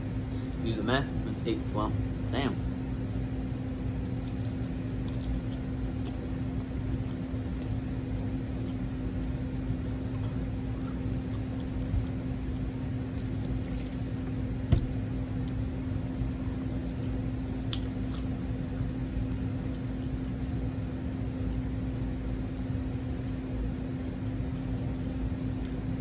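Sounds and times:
low electrical hum: 0.0s - 26.0s
chewing and mouth sounds: 3.4s - 12.3s, 13.0s - 22.9s.

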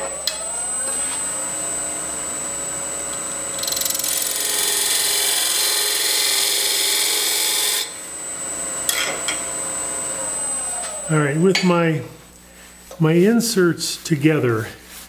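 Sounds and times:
wood lathe running: 0.0s - 11.7s.

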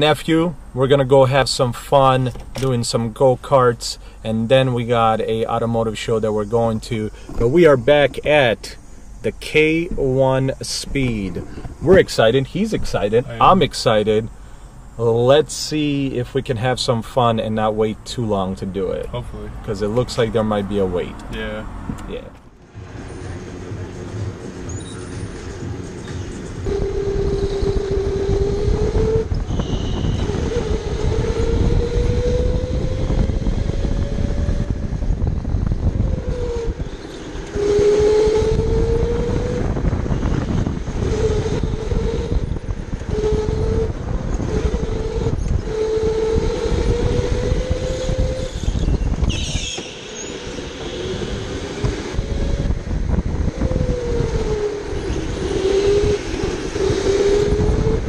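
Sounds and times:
high squeal: 24.6s - 58.0s
electric go-kart motor whining: 24.7s - 58.0s
kart rolling on concrete: 29.3s - 58.0s.

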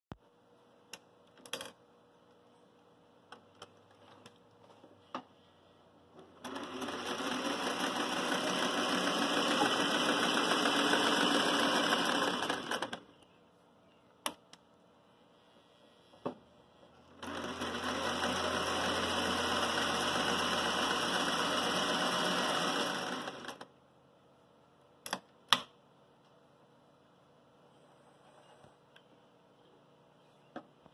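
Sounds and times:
sewing machine stitching: 6.2s - 13.0s, 17.1s - 23.7s.

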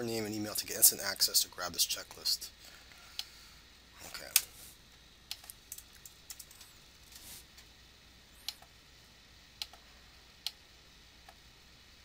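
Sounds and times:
mouse clicks: 9.6s - 9.8s.

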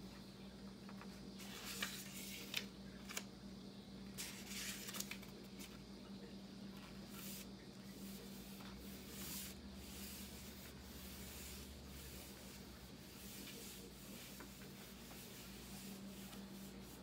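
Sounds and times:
faint low hum: 0.0s - 17.0s
book pages rustling: 0.8s - 3.3s, 4.2s - 5.8s
hands swishing over paper: 7.0s - 17.0s.

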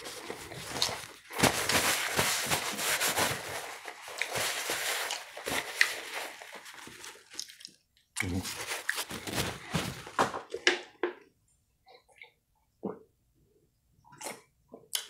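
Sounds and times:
paper rustling and crinkling: 0.0s - 7.6s, 8.4s - 10.4s.

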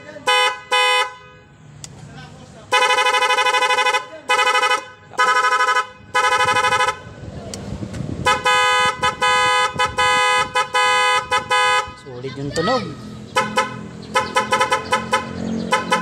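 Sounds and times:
motorcycle horn beeping: 0.2s - 1.6s, 2.7s - 7.2s, 8.2s - 12.2s, 13.3s - 16.0s.

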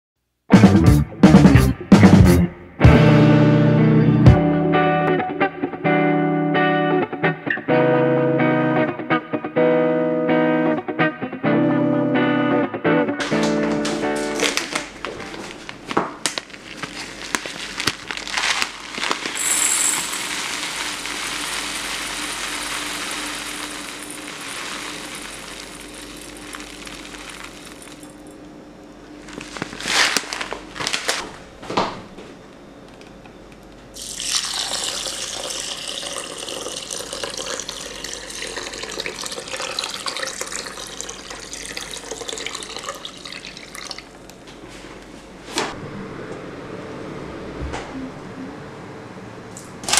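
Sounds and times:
dried beans pattering into bowl: 16.3s - 28.3s
water pouring into bowl: 19.4s - 28.3s, 34.0s - 44.1s.

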